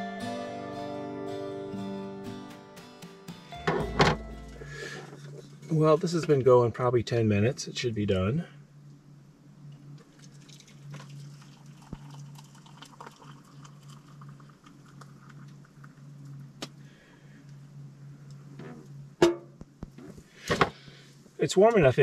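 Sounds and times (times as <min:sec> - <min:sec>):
steady low hum: 0:00.0 - 0:22.0
coffee pouring into a mug: 0:10.0 - 0:16.0.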